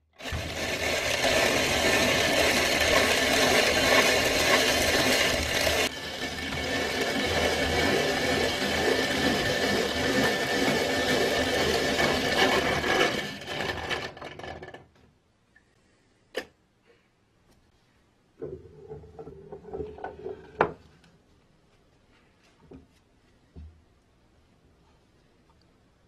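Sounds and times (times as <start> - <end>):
coffee grinder grinding beans: 0.0 - 14.9.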